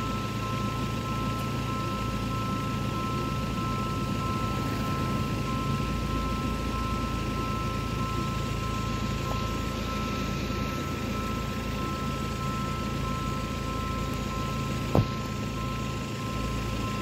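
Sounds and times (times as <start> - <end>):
two-note warning signal: 0.0 - 17.0.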